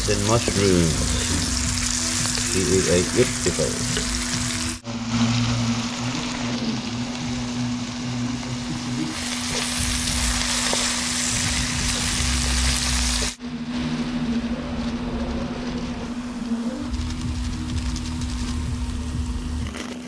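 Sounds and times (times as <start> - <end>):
vegetables sizzling in oil: 0.0 - 13.8
low hum: 0.0 - 20.0.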